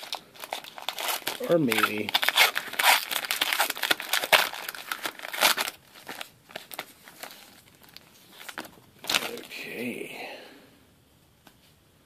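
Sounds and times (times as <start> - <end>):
foil wrapper tearing and crinkling: 0.0 - 9.6.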